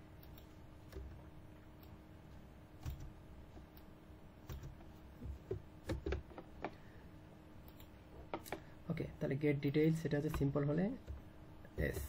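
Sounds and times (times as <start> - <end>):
faint steady hum: 0.0 - 12.0
computer keyboard keystrokes: 2.8 - 3.1, 4.4 - 4.8, 5.5 - 6.5.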